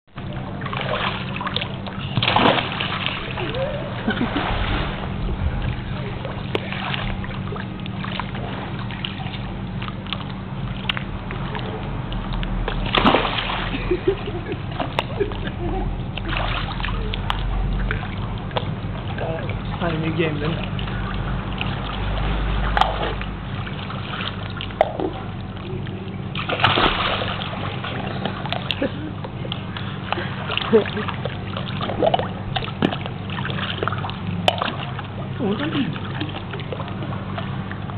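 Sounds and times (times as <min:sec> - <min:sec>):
water drips and splashes: 0:00.2 - 0:15.5, 0:16.1 - 0:37.9
water sloshing in pool: 0:00.2 - 0:37.9
splash into pool: 0:00.6 - 0:07.3, 0:12.7 - 0:13.9, 0:16.2 - 0:17.0, 0:26.4 - 0:28.8.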